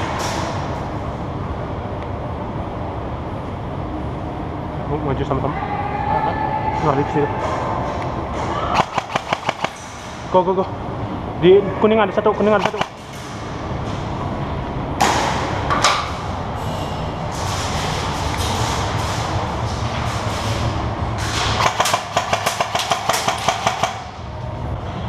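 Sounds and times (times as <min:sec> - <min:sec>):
airsoft rifle firing rapid shots: 0:08.8 - 0:09.8, 0:21.6 - 0:24.1.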